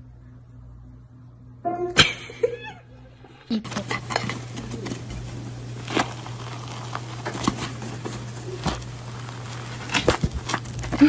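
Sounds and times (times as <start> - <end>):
steady low hum: 0.0 - 11.0
cake crust crackling: 3.7 - 11.0.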